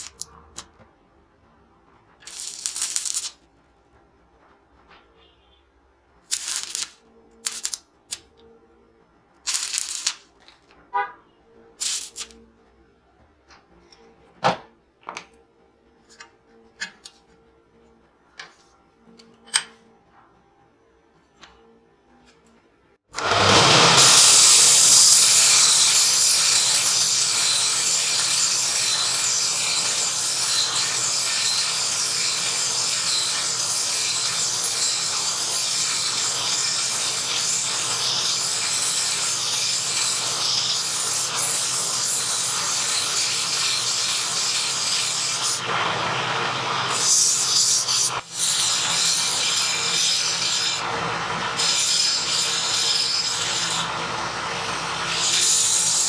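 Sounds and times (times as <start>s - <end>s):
belt grinder grinding steel blade: 23.1s - 56.0s.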